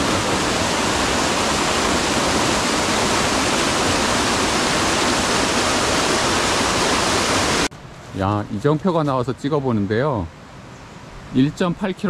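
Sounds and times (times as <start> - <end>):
mountain stream rushing: 0.0 - 7.7.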